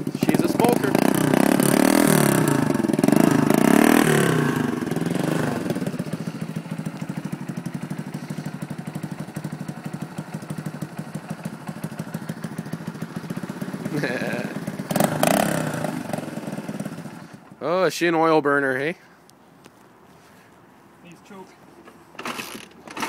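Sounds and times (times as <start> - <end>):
motorcycle engine revving and idling: 0.0 - 17.6.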